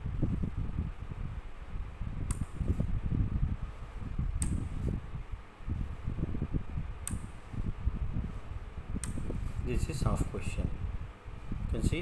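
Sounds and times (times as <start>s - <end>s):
rotary switch clicking: 2.2s - 2.6s, 4.3s - 4.7s, 7.0s - 7.3s, 9.0s - 9.4s.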